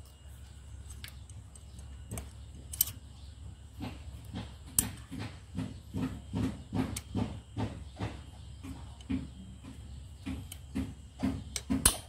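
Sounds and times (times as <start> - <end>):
metallic clicks: 0.9 - 3.0.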